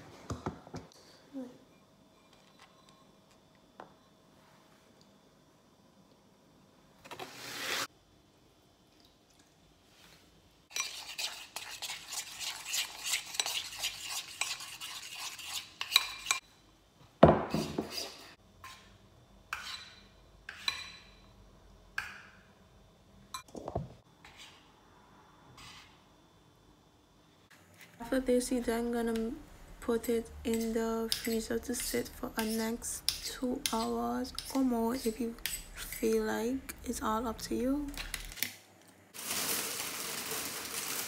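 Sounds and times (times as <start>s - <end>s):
spoon stirring batter in bowl: 10.7s - 16.4s, 30.5s - 36.3s.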